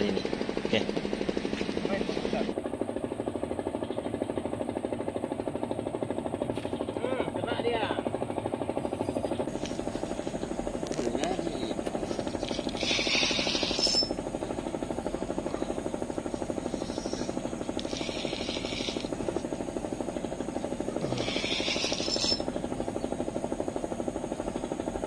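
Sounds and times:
small engine running: 0.0 - 25.0.

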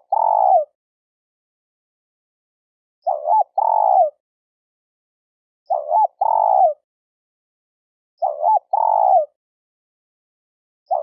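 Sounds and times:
dove cooing: 0.0 - 0.7, 3.0 - 4.2, 5.7 - 6.8, 8.2 - 9.4.

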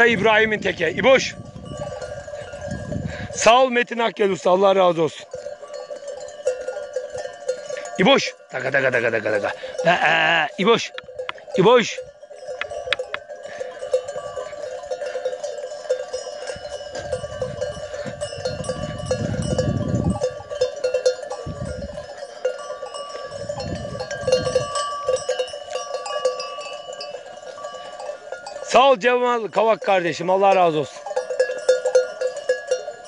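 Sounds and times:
livestock bells clanking: 0.0 - 33.0.

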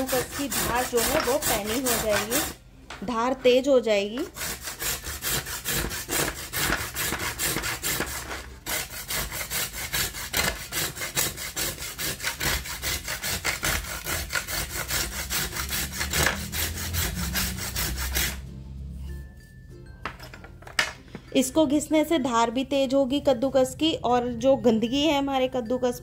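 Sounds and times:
clay rubbing on metal grater: 0.0 - 2.6, 4.2 - 18.4.

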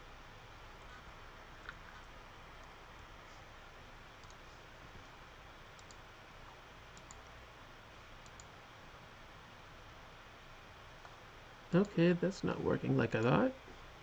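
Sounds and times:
low room tone hiss: 0.0 - 14.0
computer mouse clicks: 4.2 - 4.4, 5.7 - 6.0, 7.0 - 7.4, 8.2 - 8.6.

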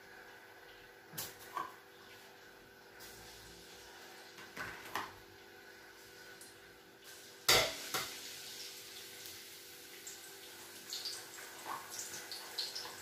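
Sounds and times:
garlic sizzling in hot oil: 2.9 - 13.0.

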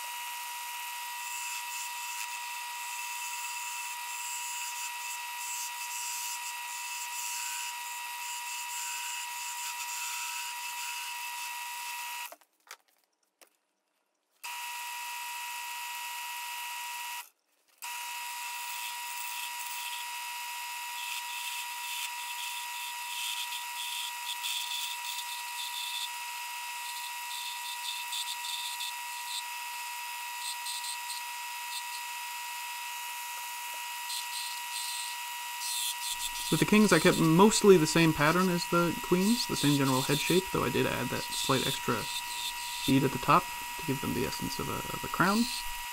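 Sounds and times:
wood lathe motor whine: 0.0 - 12.3, 14.5 - 45.9
wood hissing against tool: 35.6 - 45.9.

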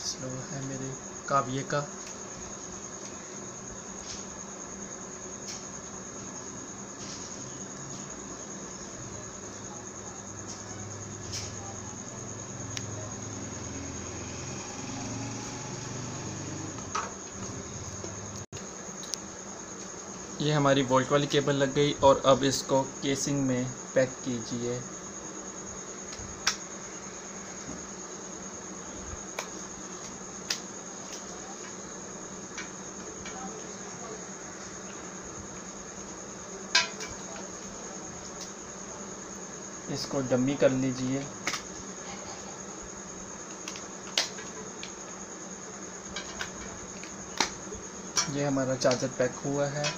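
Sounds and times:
low machine hum: 7.4 - 26.0.

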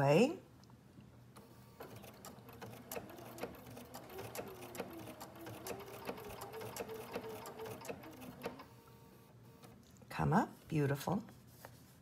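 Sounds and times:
sewing machine motor hum: 1.4 - 9.8
sewing machine needle clicks: 1.8 - 8.7.

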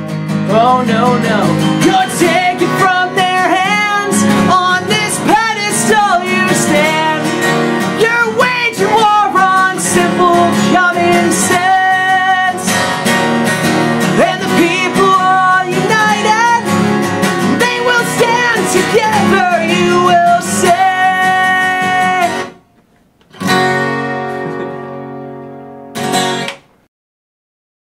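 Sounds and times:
acoustic guitar strumming: 0.0 - 26.8.

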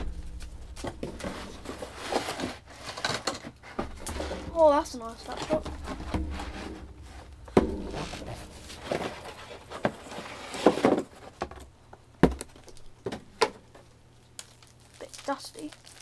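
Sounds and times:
knocks and bumps: 0.0 - 2.6, 3.7 - 11.6
plastic rustling: 0.0 - 11.5, 12.5 - 16.0.

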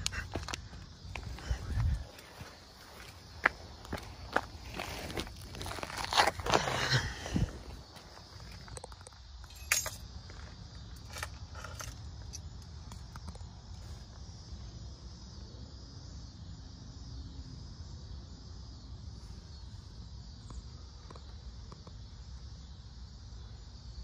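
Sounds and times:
handling clicks and scrapes: 10.9 - 13.3.

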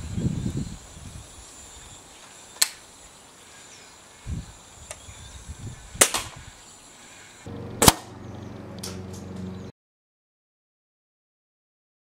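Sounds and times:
air rifle click: 2.6 - 2.8
air rifle shot: 6.0 - 6.4, 7.8 - 8.1.

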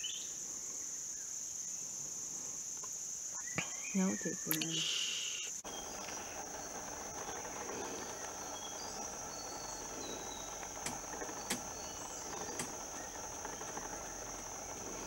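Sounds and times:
insects droning: 0.0 - 15.0
sharp clicks: 5.4 - 15.0.

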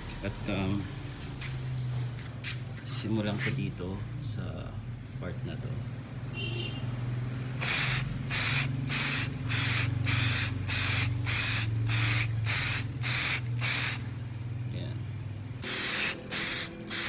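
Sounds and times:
aerosol can spraying: 7.6 - 14.1, 15.6 - 17.0.

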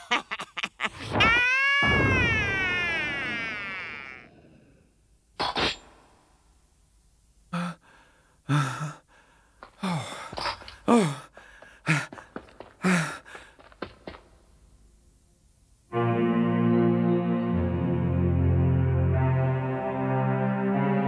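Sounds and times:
young man gasping and sighing: 7.5 - 13.6.

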